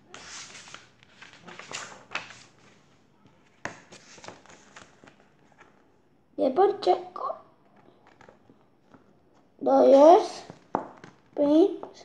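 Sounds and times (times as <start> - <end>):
book pages rustling: 0.0 - 5.9, 7.6 - 9.5.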